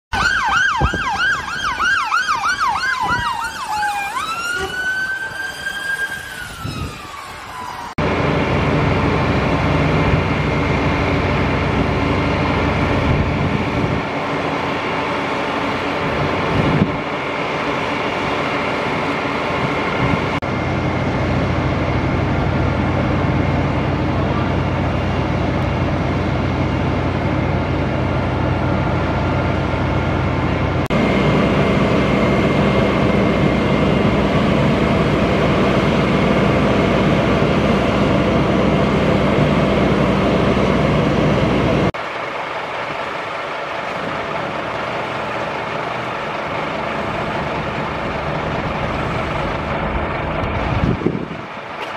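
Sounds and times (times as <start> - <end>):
fire engine siren: 0.1 - 51.9
diesel engines droning: 0.2 - 51.9.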